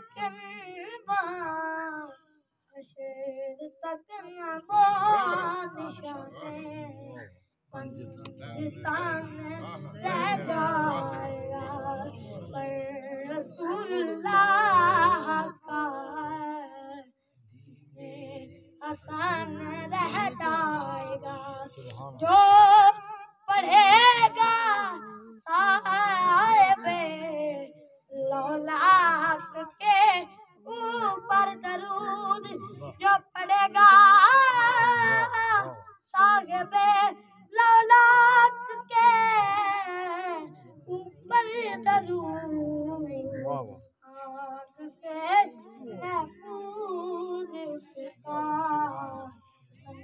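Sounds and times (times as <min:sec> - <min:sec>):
boy singing unaccompanied: 0:00.0 - 0:02.2, 0:02.8 - 0:17.1, 0:18.0 - 0:50.0.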